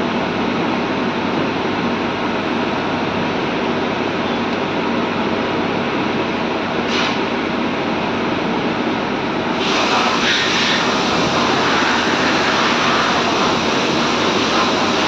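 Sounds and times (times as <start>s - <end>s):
lathe whirring and hissing: 6.2s - 15.0s.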